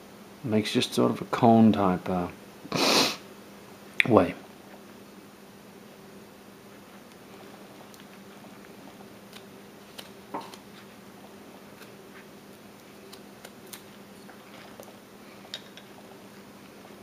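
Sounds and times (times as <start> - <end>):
steady low hum: 0.0 - 17.0
knife carving wood: 11.6 - 14.8.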